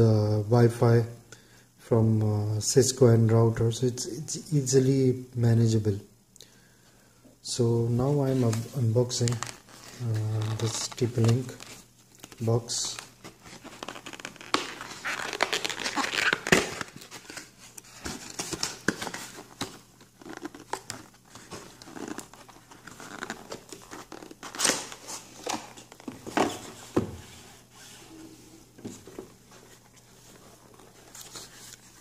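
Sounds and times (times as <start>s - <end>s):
cardboard crinkling and rustling: 8.2s - 27.7s, 28.7s - 32.0s.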